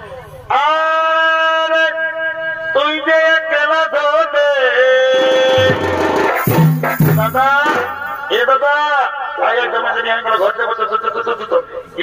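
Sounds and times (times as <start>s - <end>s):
reed pipe melody: 5.1s - 8.5s
low folk drums: 5.1s - 8.6s.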